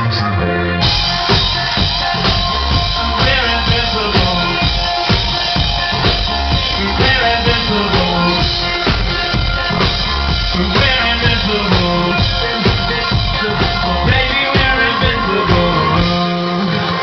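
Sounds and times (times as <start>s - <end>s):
loud live band music: 0.0s - 17.0s
drum kit steady beat: 0.8s - 17.0s.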